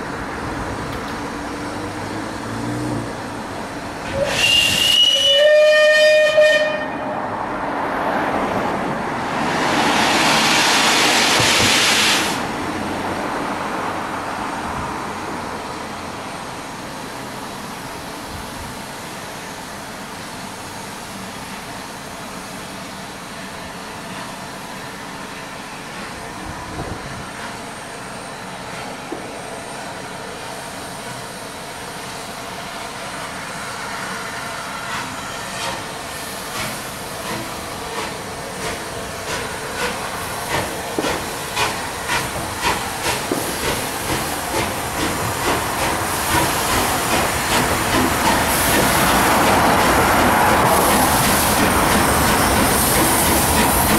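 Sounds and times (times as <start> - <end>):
steam hissing: 4.0 - 5.9, 9.3 - 12.6, 25.9 - 53.9
steam locomotive exhaust beats: 4.0 - 7.2, 17.6 - 53.9.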